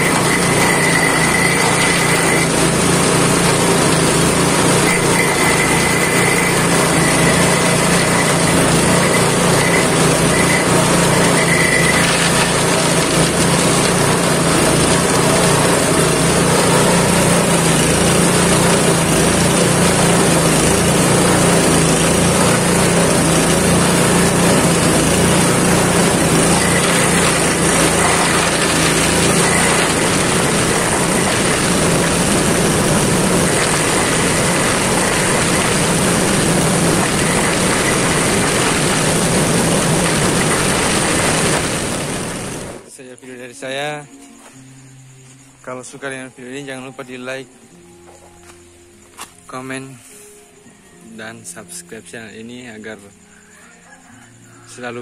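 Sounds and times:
branches being shredded: 0:00.0 - 0:42.9
grass chopper engine running: 0:00.0 - 0:42.9.

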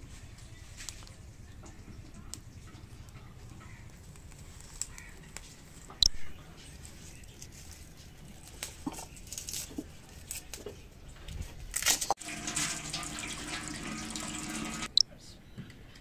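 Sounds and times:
tap water running into sink: 0:12.2 - 0:15.0.

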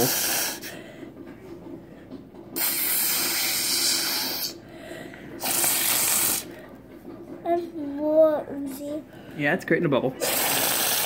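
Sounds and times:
breath blown through a straw: 0:00.0 - 0:00.8, 0:02.6 - 0:04.6, 0:05.4 - 0:06.6, 0:10.2 - 0:11.0.

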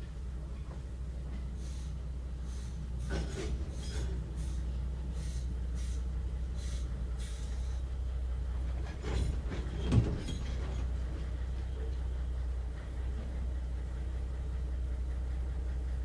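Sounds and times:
clunk and rattle: 0:00.0 - 0:01.6, 0:02.9 - 0:04.9, 0:07.1 - 0:13.8
train coach rumbling: 0:00.0 - 0:16.0
wheels clicking over rails: 0:03.0 - 0:04.5, 0:06.6 - 0:16.0.

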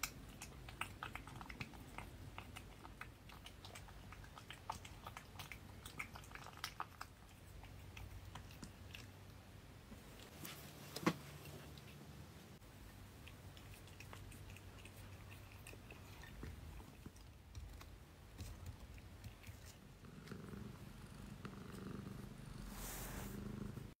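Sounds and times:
cat purring: 0:00.0 - 0:10.3, 0:12.9 - 0:24.0
rustling hiss: 0:20.6 - 0:23.8.

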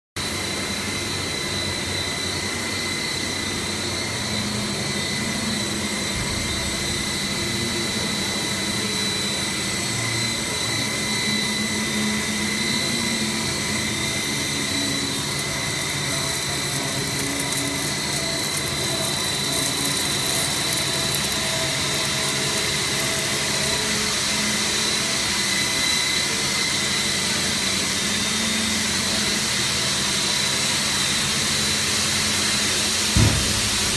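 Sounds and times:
high machine whine: 0:00.2 - 0:33.9
extruder machinery hissing: 0:00.3 - 0:26.7, 0:32.0 - 0:33.9
low machine hum: 0:04.1 - 0:24.6, 0:33.1 - 0:33.9.

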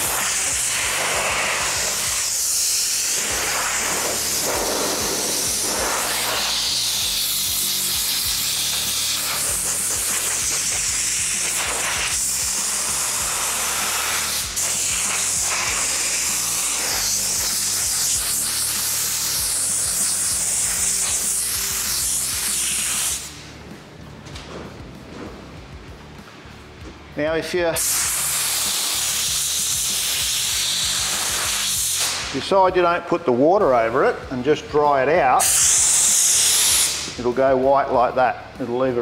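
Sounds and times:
air blow gun hissing: 0:00.0 - 0:23.5, 0:27.7 - 0:32.7, 0:35.3 - 0:37.4
background music: 0:00.0 - 0:39.0.

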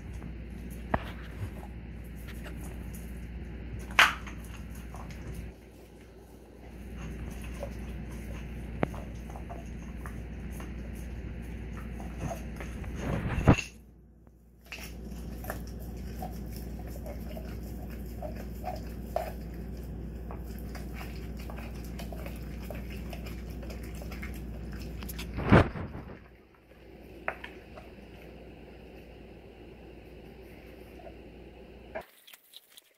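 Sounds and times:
dog chewing bone: 0:00.0 - 0:13.6, 0:14.6 - 0:26.2.

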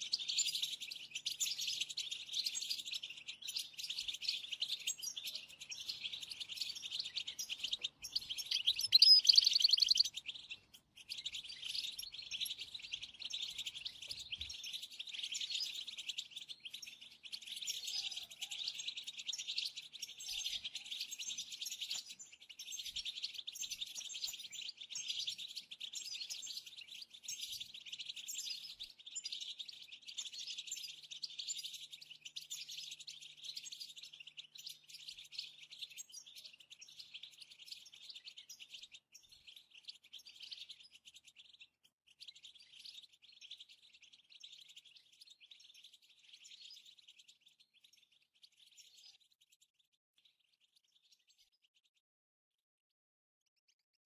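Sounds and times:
finches twittering: 0:03.6 - 0:15.1.

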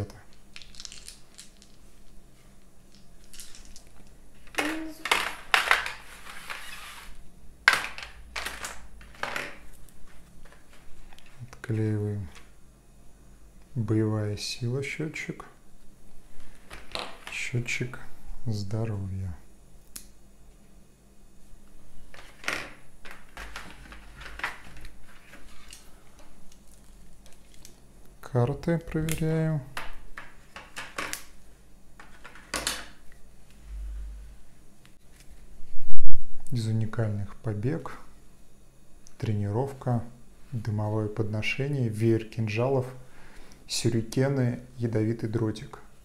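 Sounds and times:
board game pieces crackling: 0:00.3 - 0:02.1, 0:02.9 - 0:07.1
board-game pieces rustling: 0:00.5 - 0:11.4, 0:22.1 - 0:25.9.

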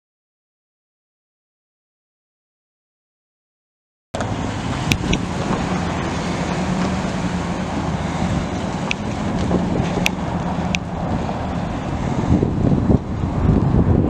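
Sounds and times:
truck engine idling: 0:04.2 - 0:13.6.

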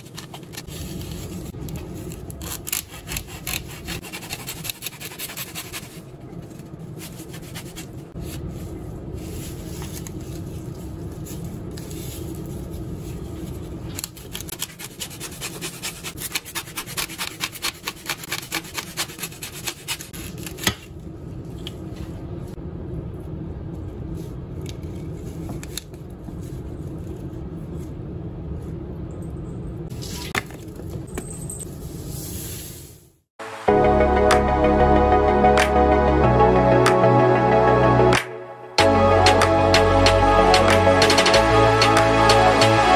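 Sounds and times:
hacksaw cutting foam: 0:02.4 - 0:05.9, 0:14.5 - 0:20.1.

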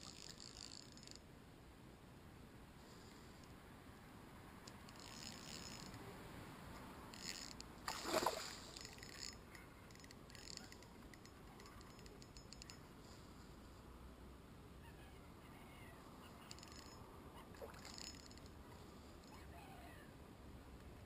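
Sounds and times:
fish splashing and thrashing in water: 0:07.9 - 0:09.3.

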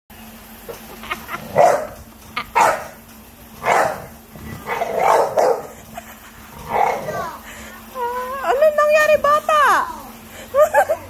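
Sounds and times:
dog barking: 0:01.5 - 0:02.0, 0:02.6 - 0:03.0, 0:03.6 - 0:05.7.

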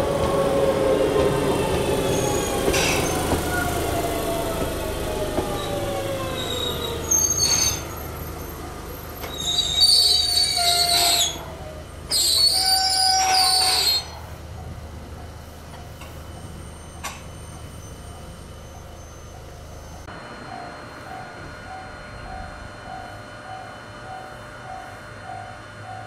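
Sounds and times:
electric train motors whining down: 0:00.0 - 0:14.2
train wheels squealing: 0:00.1 - 0:14.3, 0:15.8 - 0:26.0.

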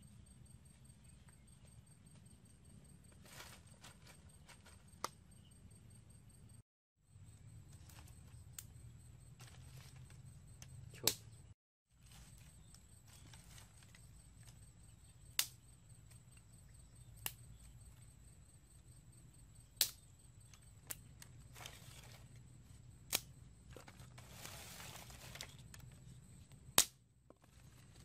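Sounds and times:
rustle of sticks and sand: 0:03.0 - 0:05.4, 0:07.6 - 0:11.2, 0:11.9 - 0:16.4, 0:20.5 - 0:26.6, 0:27.4 - 0:28.0.

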